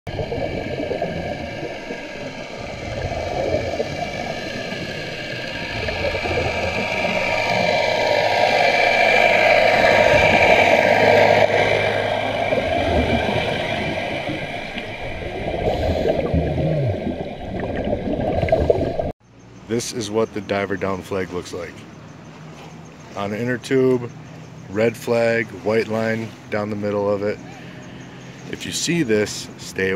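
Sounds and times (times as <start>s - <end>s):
motorboat engine heard underwater: 0.1s - 19.1s.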